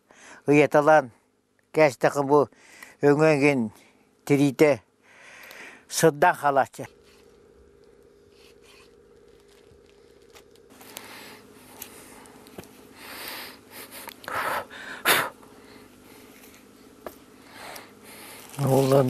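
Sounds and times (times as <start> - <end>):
low steady hum: 0.0 - 19.0
rustling of pelt handling: 6.9 - 13.0, 15.8 - 19.0
plastic sack rustling: 18.1 - 19.0.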